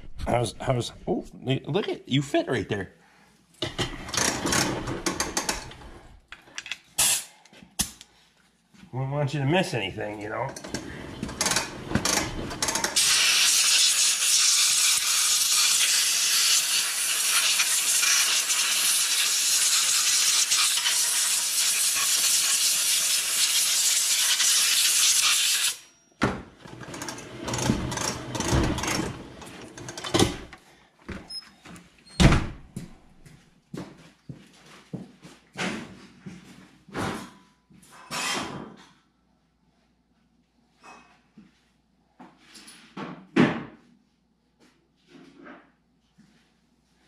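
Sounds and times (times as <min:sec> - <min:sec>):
knocks and clunks: 0:26.2 - 0:31.3.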